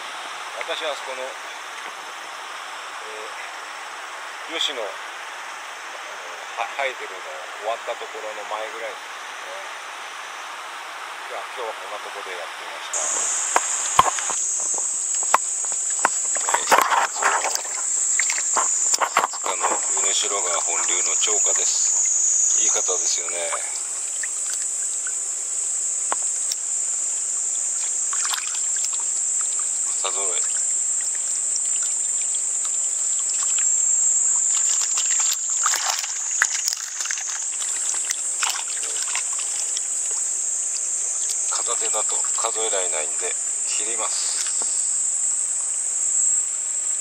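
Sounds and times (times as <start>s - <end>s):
high-pitched hiss: 0.0s - 47.0s
insects shrilling: 0.0s - 47.0s
fish splashing in a net: 15.8s - 19.0s, 28.0s - 29.7s, 30.4s - 33.7s, 34.3s - 40.3s.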